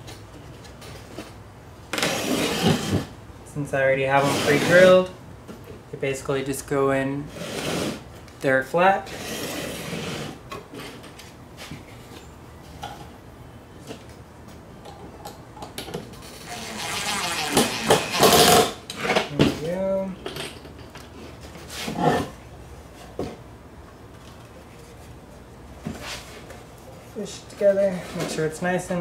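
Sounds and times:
cordless drill driving screw: 16.5s - 18.7s.

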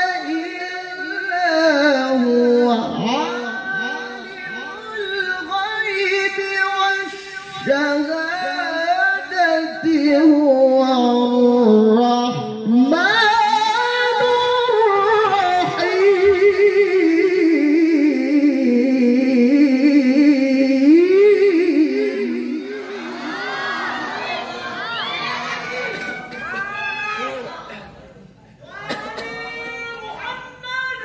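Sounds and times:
man chanting into microphone: 0.0s - 22.8s.

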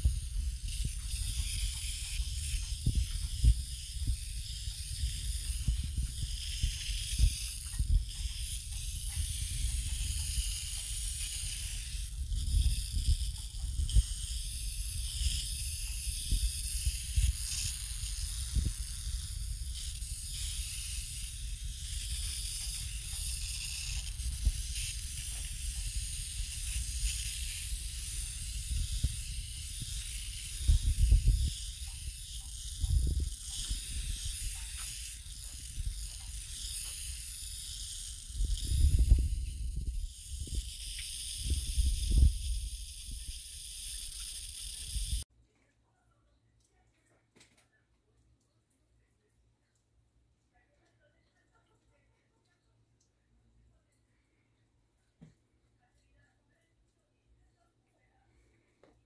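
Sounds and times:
water spray hissing: 0.0s - 45.2s.

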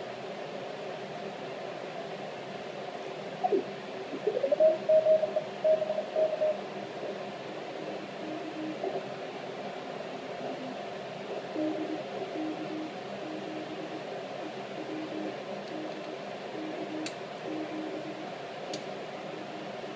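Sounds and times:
radio band hiss: 0.0s - 19.9s
faint low morse signal: 3.4s - 9.2s, 9.9s - 18.4s, 19.0s - 19.9s
morse code tones: 4.5s - 6.6s, 8.2s - 8.9s, 11.6s - 18.2s.

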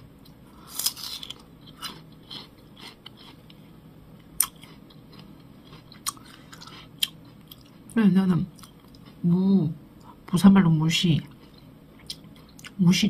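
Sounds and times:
mouth chewing crisp pear: 0.2s - 9.3s.

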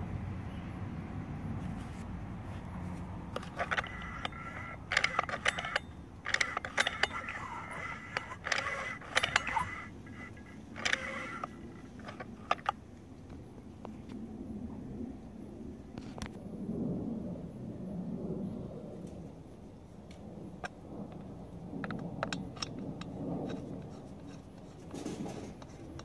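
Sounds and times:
metallic jingling and clinking: 3.4s - 12.7s.

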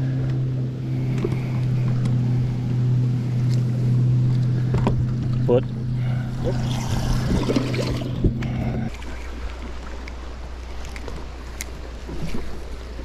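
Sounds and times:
electric motor hum: 0.0s - 9.0s
lower steady hum: 0.0s - 13.0s
knocks and water splashes: 3.4s - 5.8s, 6.4s - 10.2s
wind buffeting microphone: 4.6s - 8.9s.

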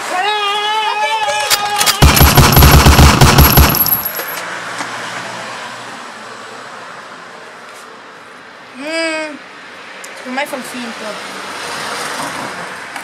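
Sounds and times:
machine-gun fire: 1.8s - 4.2s.

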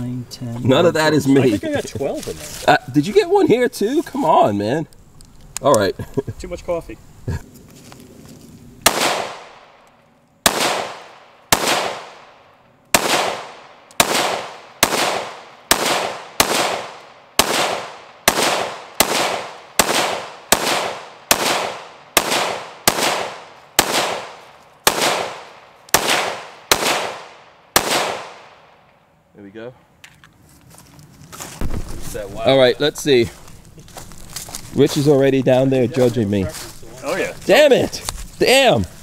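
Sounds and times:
pistol shots: 8.8s - 9.8s, 10.4s - 28.8s.

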